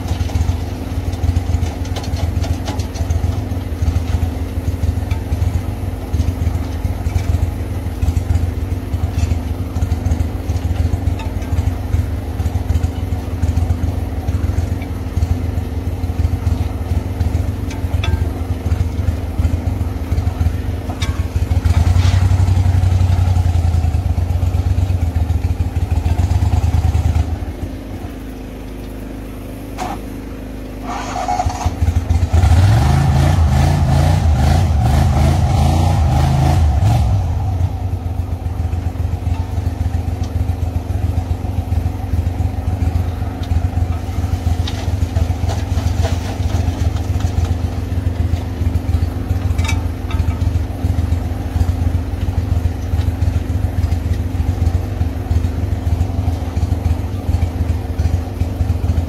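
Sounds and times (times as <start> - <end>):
small boat motor running: 36.6 - 59.0.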